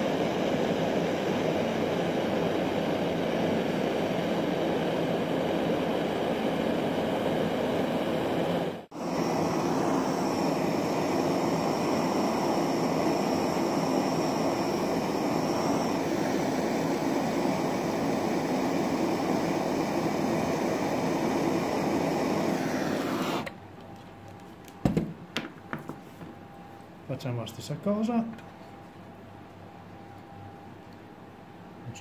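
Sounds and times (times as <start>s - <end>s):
blowtorch flame hissing: 0.0s - 23.6s.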